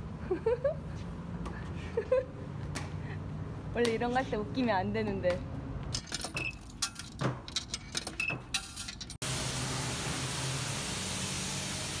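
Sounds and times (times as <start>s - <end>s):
coins clinking into coin box: 6.0s - 9.2s
high-pressure wand spraying: 9.2s - 12.0s.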